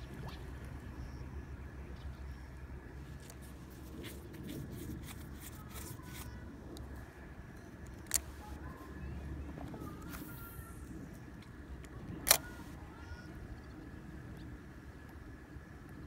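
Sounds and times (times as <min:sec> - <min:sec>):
small clicks and handling noises: 0:03.2 - 0:06.9, 0:07.7 - 0:08.6, 0:09.6 - 0:12.7
sharp click: 0:12.2 - 0:12.6.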